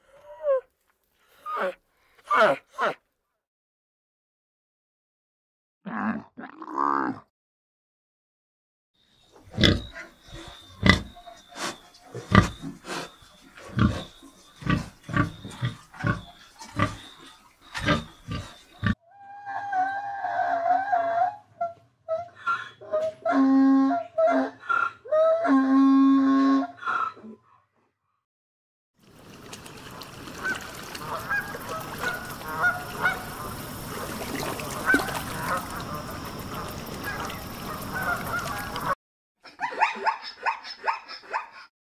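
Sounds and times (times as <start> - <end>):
pigs grunting: 9.5 - 19.0
outdoor hiss: 29.0 - 38.9
swans honking: 29.6 - 39.0.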